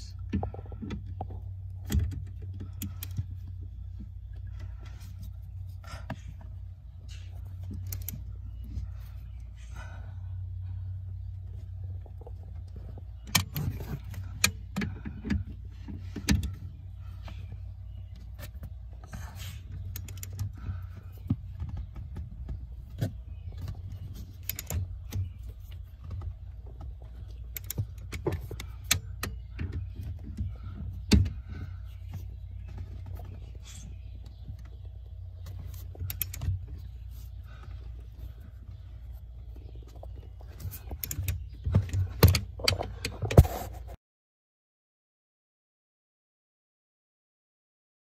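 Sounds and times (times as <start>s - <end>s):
steady low hum: 0.0s - 44.0s.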